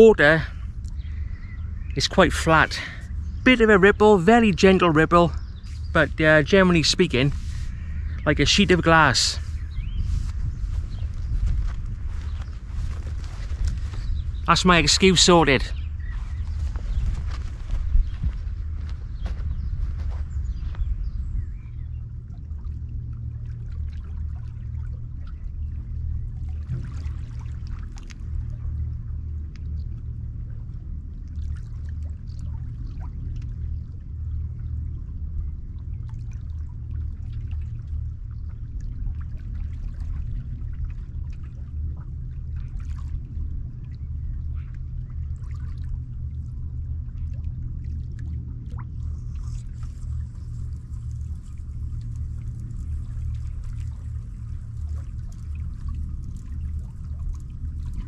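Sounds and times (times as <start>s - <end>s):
steady low rumble: 0.0s - 58.0s
water lapping among rocks: 9.4s - 14.5s, 36.1s - 58.0s
small splashes and drips: 22.0s - 58.0s.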